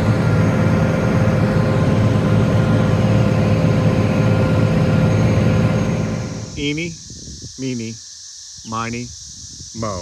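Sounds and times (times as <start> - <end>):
tractor diesel engine running: 0.0 - 7.1
thin steady whine: 0.0 - 10.0.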